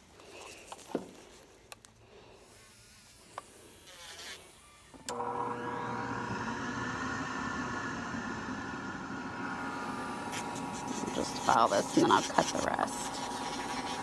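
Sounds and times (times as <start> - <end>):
electric nail drill humming: 3.8 - 14.0.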